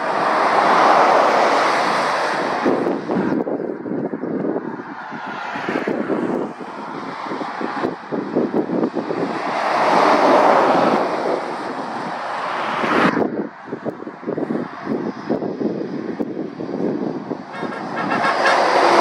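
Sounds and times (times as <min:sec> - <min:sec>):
road noise: 0:00.0 - 0:19.0
wind buffeting microphone: 0:00.0 - 0:19.0.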